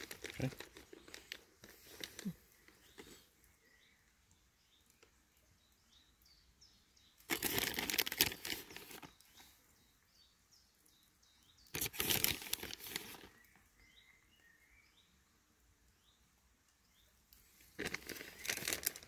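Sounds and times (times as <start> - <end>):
plastic packet crinkling: 0.0 - 3.1, 7.3 - 9.2, 11.8 - 13.4, 17.7 - 19.0
faint bird chirps: 0.0 - 19.0.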